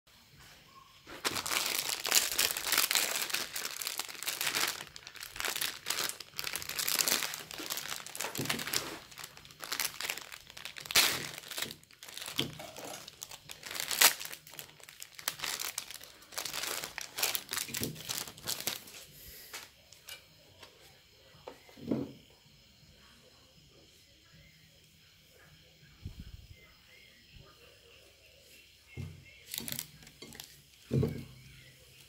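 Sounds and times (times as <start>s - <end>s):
plastic packaging crinkling: 1.1s - 19.7s, 29.4s - 31.3s.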